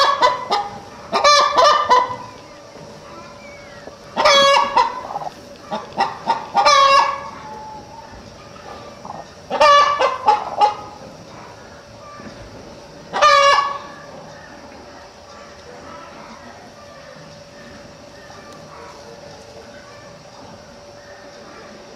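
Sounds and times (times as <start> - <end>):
hen calling loudly: 0.0 - 11.0, 13.1 - 13.9.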